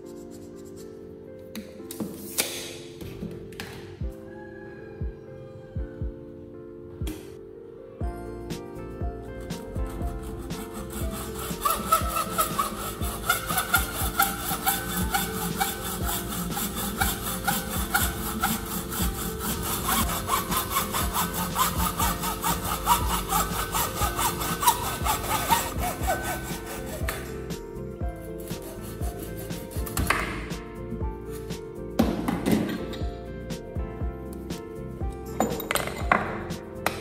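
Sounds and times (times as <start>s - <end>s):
hand saw cutting: 9.4s - 27.6s, 28.4s - 30.6s.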